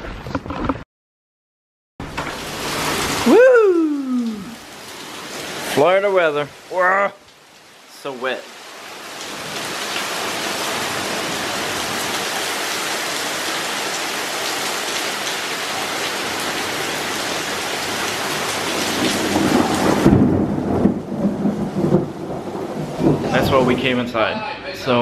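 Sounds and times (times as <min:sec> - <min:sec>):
heavy rain: 0:02.0 - 0:24.3
low rumbling thunder: 0:18.8 - 0:24.0.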